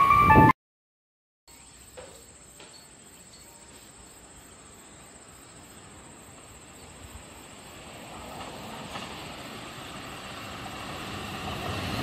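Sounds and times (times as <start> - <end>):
insects trilling: 1.5 - 8.4
distant train rumble: 3.7 - 12.0.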